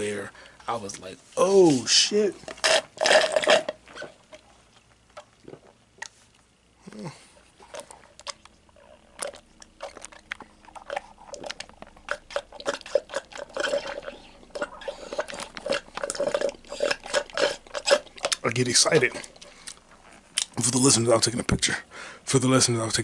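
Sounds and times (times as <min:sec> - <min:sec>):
slurping through a straw: 0:08.8 - 0:20.2.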